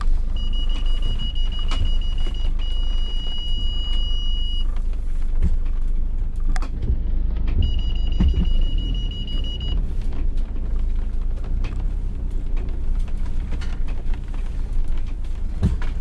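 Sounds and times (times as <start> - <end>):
low rumble of van crawling: 0.0 - 16.0
parking sensor alarm tone: 0.1 - 4.8, 7.5 - 9.8.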